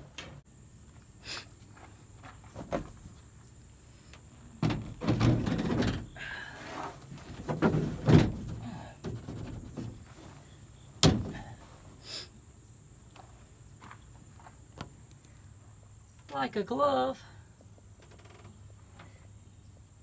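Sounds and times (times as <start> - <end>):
wooden board knocking and scraping: 7.2 - 10.0.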